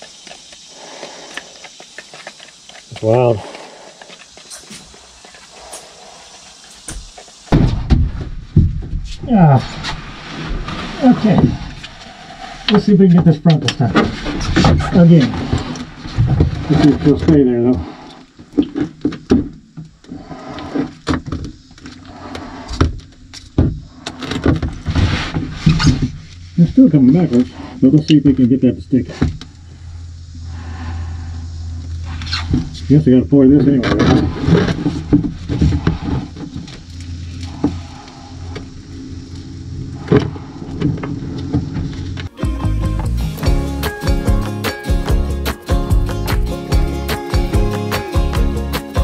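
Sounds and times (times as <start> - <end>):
rustling: 0.0 - 12.9.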